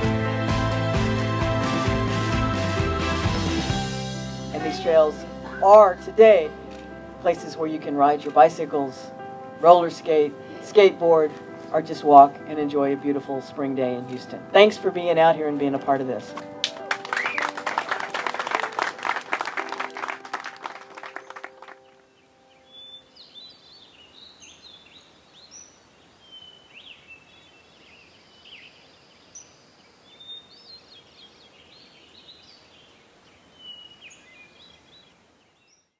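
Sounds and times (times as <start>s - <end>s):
background music: 0.0s - 23.3s
applause: 16.3s - 21.9s
birds chirping: 17.1s - 35.9s.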